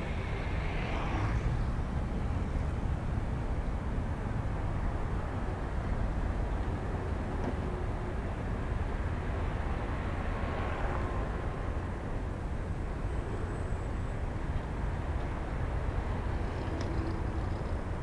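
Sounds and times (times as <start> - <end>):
outdoor rumble and hiss: 0.0 - 18.0.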